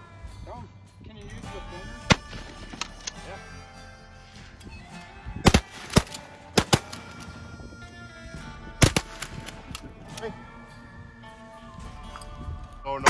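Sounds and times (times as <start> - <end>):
background music: 0.0 - 13.0
shotgun blasts: 5.4 - 7.2, 8.8 - 9.7.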